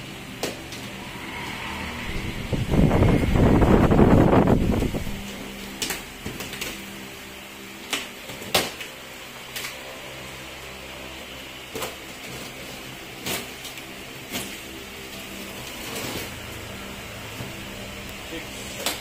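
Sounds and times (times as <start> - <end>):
steady hum: 0.0 - 8.3.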